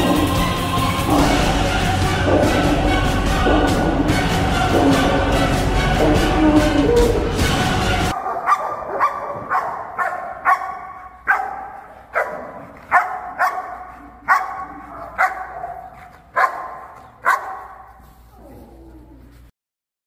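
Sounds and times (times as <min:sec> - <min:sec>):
dog barking sharply: 0:08.1 - 0:17.9.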